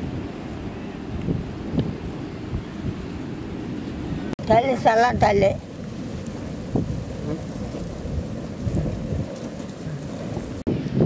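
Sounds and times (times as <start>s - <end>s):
wind rumbling on microphone: 0.0s - 11.0s
wood fire crackling: 4.5s - 10.7s.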